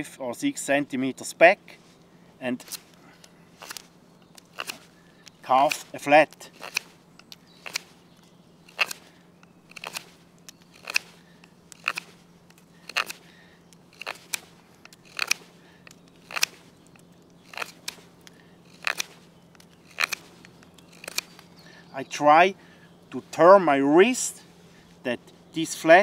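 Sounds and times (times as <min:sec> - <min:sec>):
knife shaving wood: 0:02.6 - 0:21.5.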